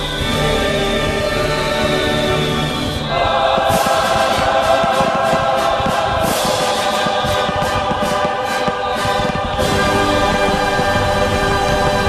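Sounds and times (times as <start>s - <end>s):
choral music: 0.0s - 12.0s
fireworks popping and crackling: 2.6s - 12.0s.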